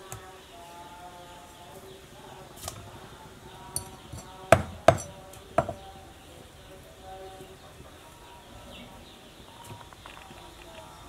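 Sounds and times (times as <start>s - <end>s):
cleaver chopping fish on wood: 4.5s - 5.8s.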